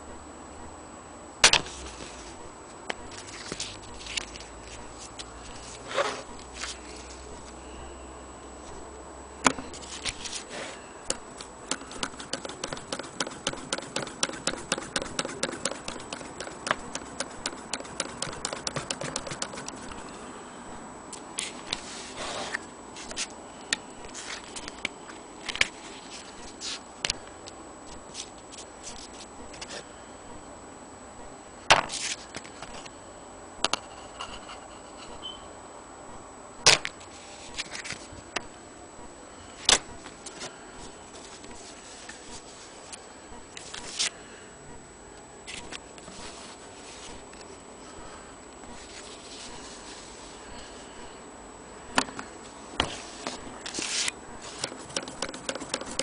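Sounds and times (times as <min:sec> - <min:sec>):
sewing machine stitching: 0:11.7 - 0:19.9.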